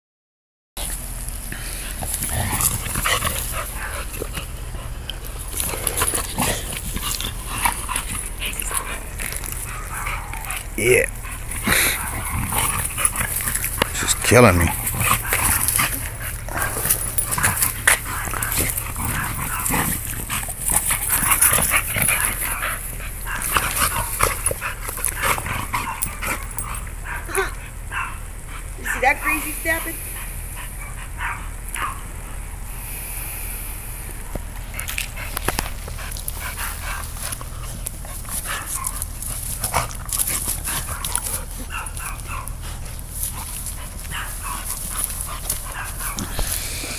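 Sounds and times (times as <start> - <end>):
claws clicking and scuffling: 0.8 - 27.1, 34.4 - 46.9
dogs yipping and whimpering: 2.6 - 29.8, 35.1 - 46.7
dogs whining and yipping: 35.9 - 46.9.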